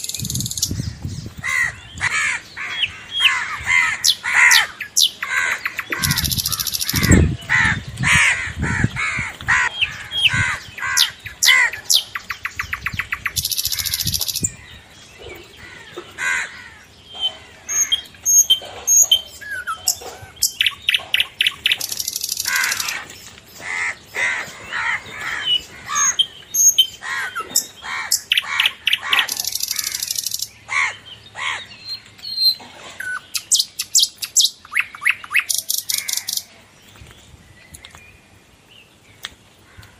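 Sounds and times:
birds chirping: 0:00.0 - 0:39.9
buzzy bird chattering: 0:01.6 - 0:08.9.

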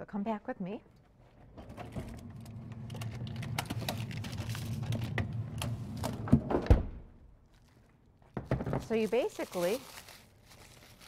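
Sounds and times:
freezer hum: 0:01.4 - 0:07.7.

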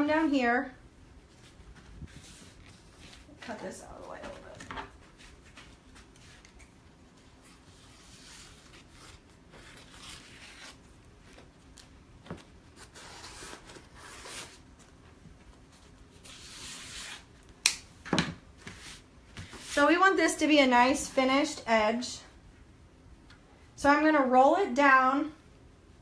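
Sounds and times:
paper rustling and ripping: 0:01.4 - 0:06.7, 0:07.4 - 0:11.8, 0:12.7 - 0:14.6.

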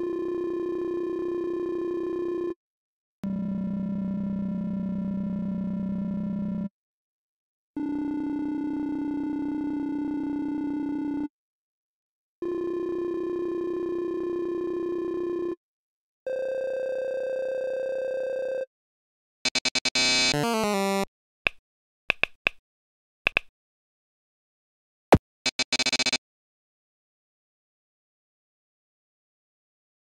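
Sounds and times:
short electronic blips: 0:19.5 - 0:21.1
steady electronic tones: 0:19.5 - 0:21.1
electronic beeps: 0:25.5 - 0:26.2.

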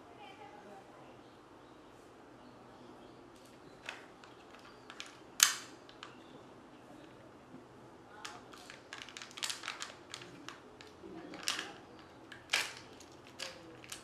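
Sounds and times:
plastic and foil crinkling: 0:03.4 - 0:06.2, 0:08.2 - 0:14.0
plastic capsule clicking: 0:03.8 - 0:06.2, 0:08.2 - 0:14.0.

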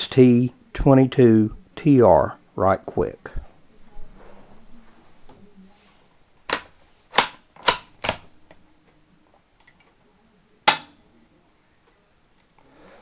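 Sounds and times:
rifle bolt metallic clicks: 0:06.5 - 0:08.2.

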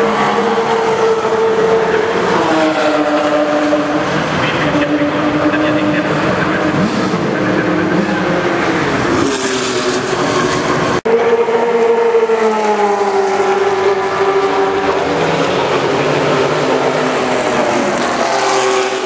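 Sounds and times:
racing car engines passing: 0:00.0 - 0:19.0.

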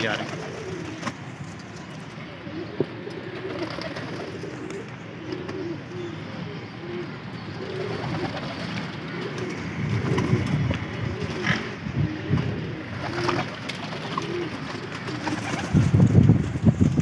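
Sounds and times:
wings flapping: 0:00.0 - 0:01.8, 0:03.1 - 0:04.9, 0:07.7 - 0:11.7, 0:12.3 - 0:17.0
pigeons cooing: 0:00.0 - 0:17.0.

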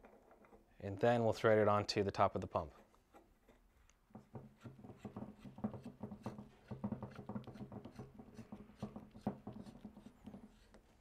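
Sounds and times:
pipe fitting scratching and clicking: 0:03.1 - 0:11.0.

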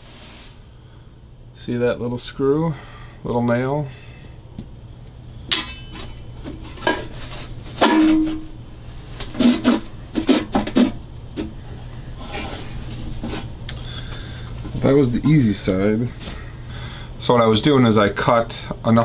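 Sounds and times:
metal body ringing: 0:05.5 - 0:06.2.

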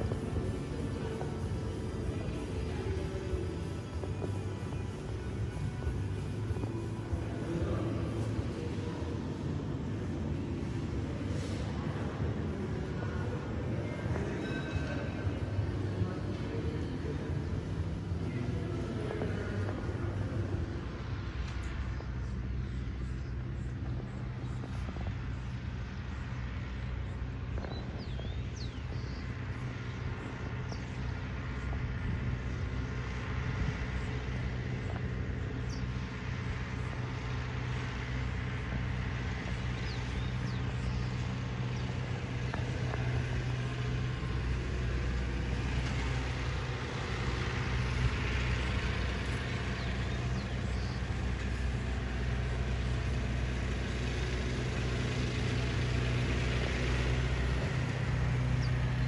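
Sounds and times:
distant machinery hum: 0:00.0 - 0:59.0
open-air background noise: 0:00.0 - 0:59.0.

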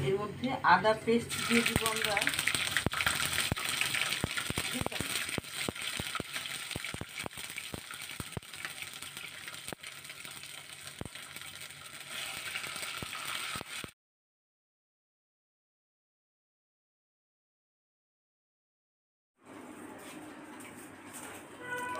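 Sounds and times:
paste sizzling in hot oil: 0:01.3 - 0:13.9
sharp pops and crackles: 0:01.5 - 0:13.9.

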